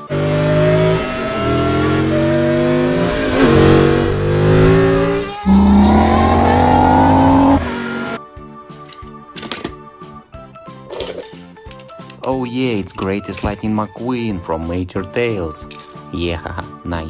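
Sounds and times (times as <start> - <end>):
race car engines revving: 0.0 - 8.2.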